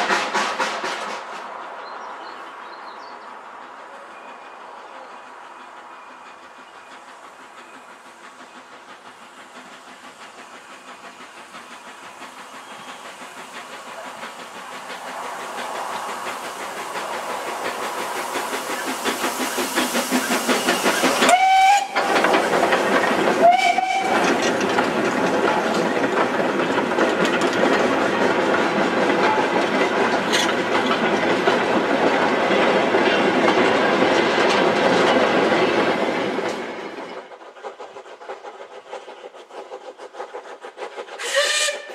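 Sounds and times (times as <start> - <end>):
steam locomotive approaching: 0.0 - 41.9
wagons rhythmic rail noise: 0.0 - 41.9
steam whistle blasts: 21.2 - 22.0, 23.4 - 24.2, 41.2 - 41.9.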